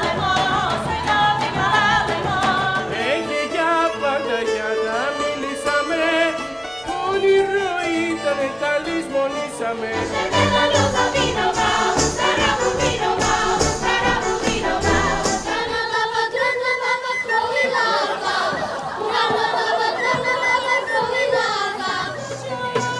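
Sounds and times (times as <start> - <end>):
chorus singing folk music: 0.0 - 22.9
steady drum beat: 10.0 - 15.7.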